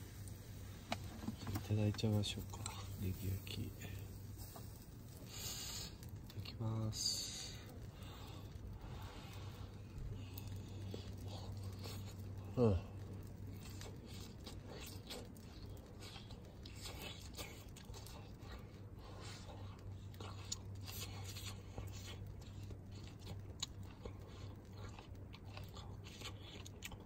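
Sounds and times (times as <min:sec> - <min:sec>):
steady low hum: 0:00.0 - 0:27.0
person chewing crunchy food: 0:07.6 - 0:27.0.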